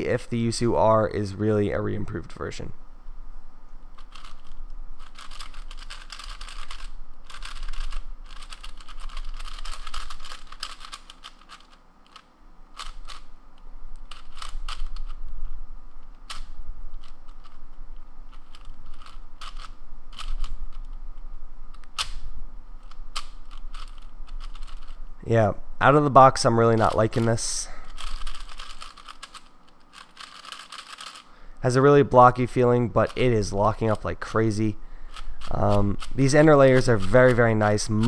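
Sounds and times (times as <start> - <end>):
puzzle cube plastic clicking: 3.9 - 21.0, 21.7 - 25.0, 26.8 - 31.3, 35.1 - 38.0.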